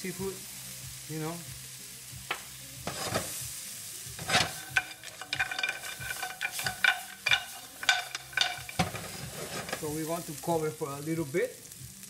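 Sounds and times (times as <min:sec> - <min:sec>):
food sizzling in frying pan: 0:00.0 - 0:12.0
shells and pan clattering: 0:02.9 - 0:03.3, 0:04.2 - 0:10.0.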